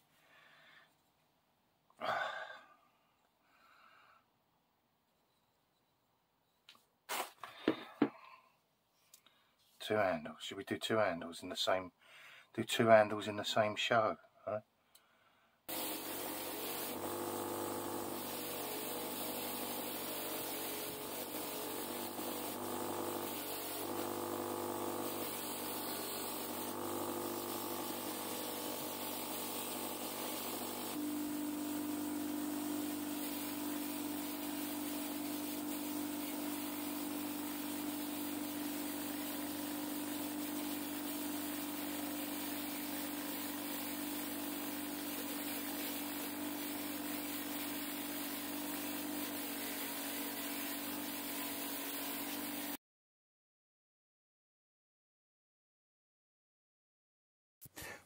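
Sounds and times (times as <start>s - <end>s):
bench grinder running: 15.7s - 52.8s.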